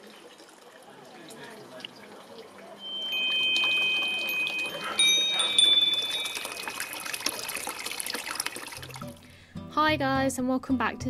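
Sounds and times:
water trickling: 0.0s - 9.4s
chimes ringing: 2.8s - 7.8s.

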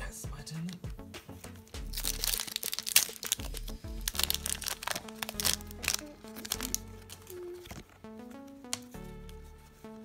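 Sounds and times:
background music: 0.0s - 10.0s
foil wrapper crinkling: 1.5s - 9.3s.

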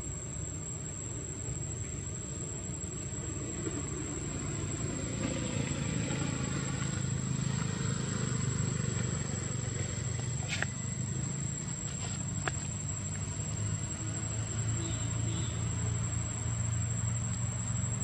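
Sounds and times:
high-pitched insect whine: 0.0s - 18.0s.

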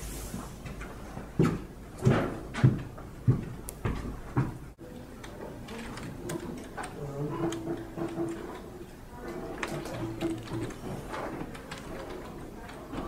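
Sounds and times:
footsteps going down stairs: 0.2s - 4.8s.

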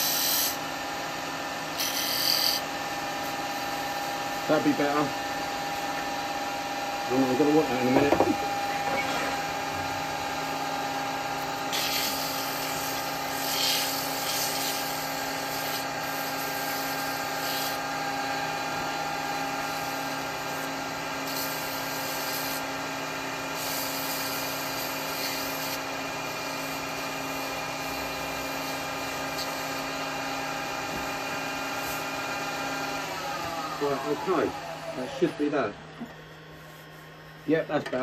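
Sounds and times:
turning tool hissing on wood: 0.0s - 0.6s, 1.7s - 2.6s, 11.7s - 17.8s, 19.6s - 22.7s, 23.5s - 29.9s
wood lathe humming: 2.6s - 11.8s, 25.7s - 37.4s.

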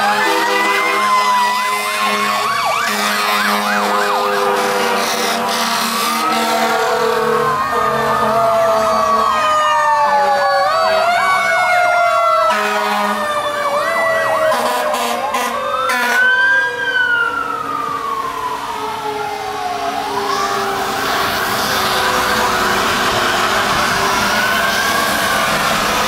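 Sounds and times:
electronic sirens wailing: 0.0s - 26.0s
low horn blast: 0.2s - 9.0s, 12.4s - 13.3s, 14.5s - 16.3s.

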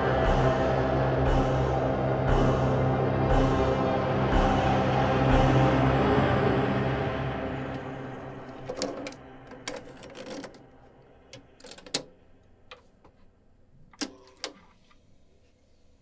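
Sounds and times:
cassette clicking into holder: 8.5s - 10.7s, 11.4s - 13.1s.

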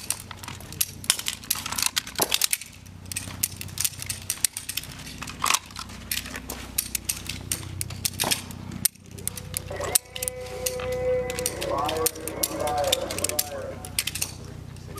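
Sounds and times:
magazine clattering onto pavement: 0.0s - 14.9s
slides and magazines handled: 0.0s - 14.9s
steady low hum: 0.0s - 14.9s
pistol triggers snapping: 6.8s - 14.5s.

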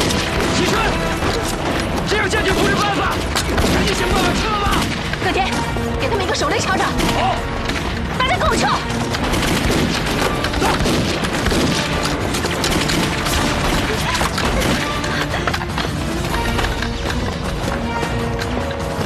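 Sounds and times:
rifle gunfire: 0.0s - 1.8s, 2.4s - 5.2s, 9.0s - 15.3s
people shouting: 0.0s - 5.5s
background music: 0.0s - 19.0s
explosions: 9.2s - 15.0s.

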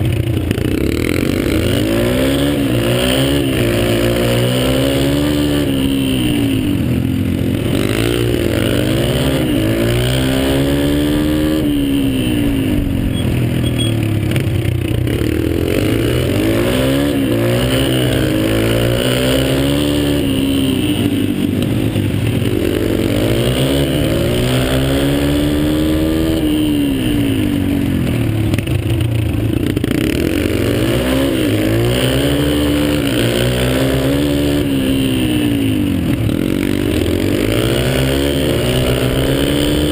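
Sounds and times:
dirt bike engines revving: 0.0s - 39.9s.

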